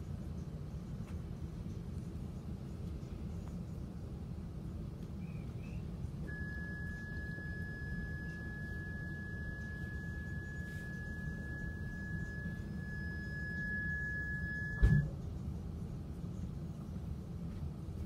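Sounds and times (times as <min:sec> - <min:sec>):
vehicle interior rumble: 0:00.7 - 0:18.0
high pure tone: 0:06.2 - 0:15.1.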